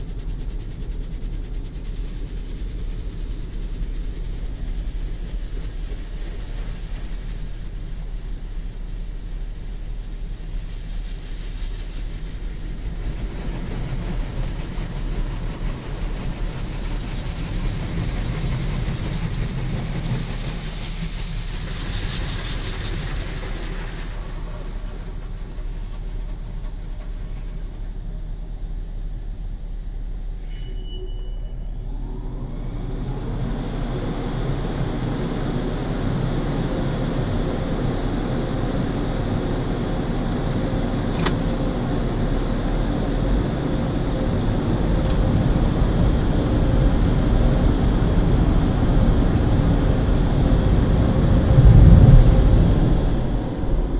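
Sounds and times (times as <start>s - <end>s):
short beep: 30.5s - 31.7s
steady low hum: 31.4s - 53.9s
rising whine: 49.3s - 53.9s.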